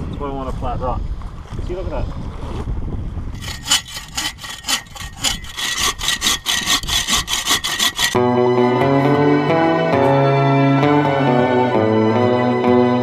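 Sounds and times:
hand saw cutting log: 3.3s - 8.2s.

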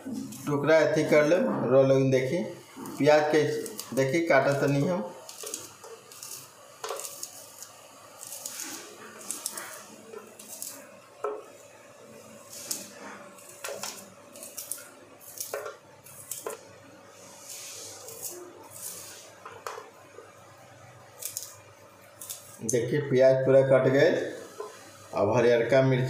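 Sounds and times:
onion pieces scraping onto plate: 2.8s - 11.5s.

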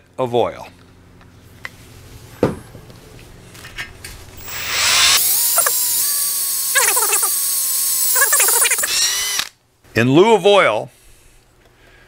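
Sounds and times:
electric drill whining: 4.4s - 9.6s.

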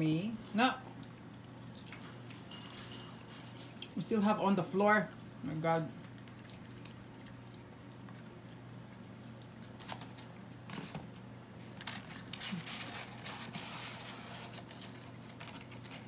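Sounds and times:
dogs licking and chewing: 0.3s - 4.0s, 5.1s - 10.7s.

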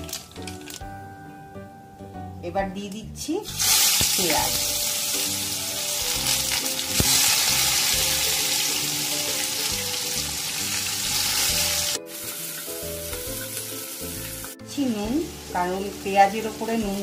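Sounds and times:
onions sizzling in hot oil: 3.4s - 17.0s.

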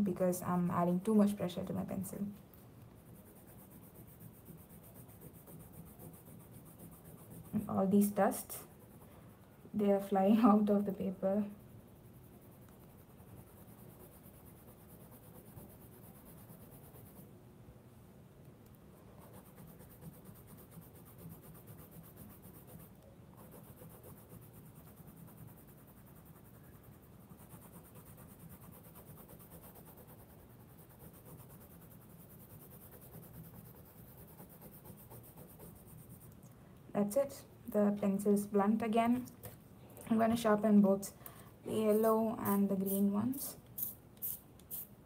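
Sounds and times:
coloured pencil scratching paper: 3.0s - 17.3s, 19.0s - 36.3s, 41.8s - 44.8s.

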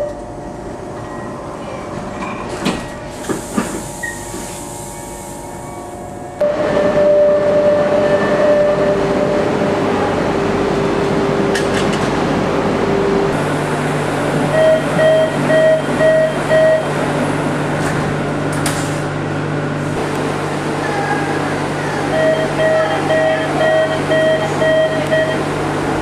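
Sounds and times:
train humming: 0.0s - 26.0s
door-closing warning beeps: 3.9s - 4.5s, 14.5s - 17.0s, 22.1s - 25.4s.

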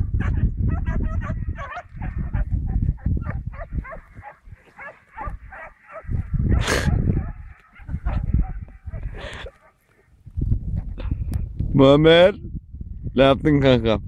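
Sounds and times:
dogs barking and yelping: 0.0s - 10.0s.

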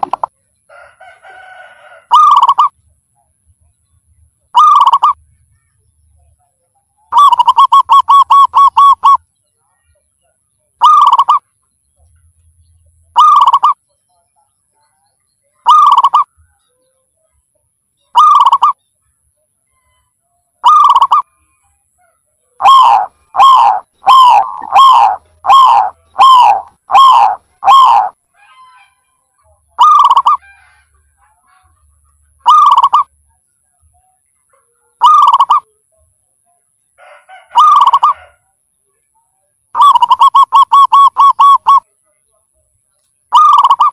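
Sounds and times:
dove cooing: 0.0s - 0.3s, 2.0s - 2.7s, 4.5s - 5.2s, 7.1s - 9.2s, 10.8s - 11.4s, 13.1s - 13.8s, 15.7s - 16.3s, 18.2s - 18.8s, 20.6s - 21.3s, 22.6s - 28.2s, 29.8s - 30.7s, 32.4s - 33.1s, 35.0s - 35.6s, 37.3s - 38.4s, 39.8s - 41.8s, 43.3s - 43.9s.

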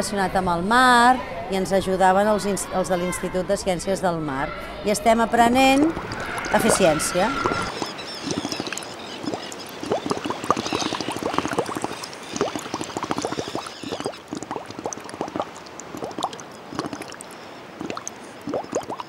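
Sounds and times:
water bubbling: 5.6s - 19.0s.

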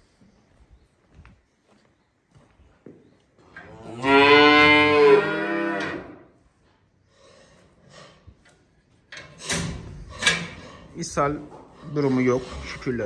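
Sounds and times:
calf mooing: 3.7s - 6.2s.

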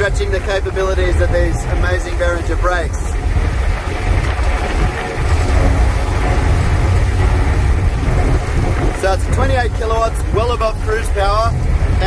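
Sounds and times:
electric aircraft motor droning: 3.1s - 9.0s.

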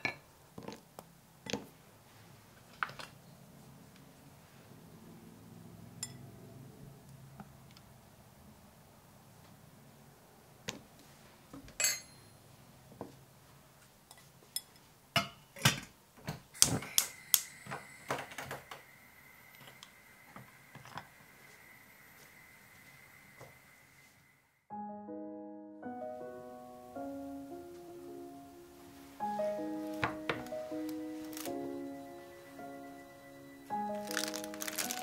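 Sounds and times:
utensils and dishes clinking: 11.8s - 12.4s
faint ringing tone: 16.6s - 24.6s.

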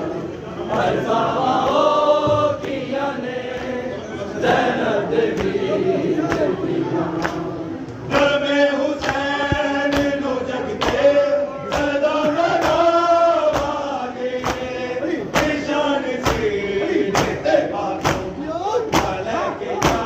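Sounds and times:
men chanting a lament: 0.0s - 20.0s
hands slapping chests: 9.0s - 10.2s, 18.0s - 18.3s.

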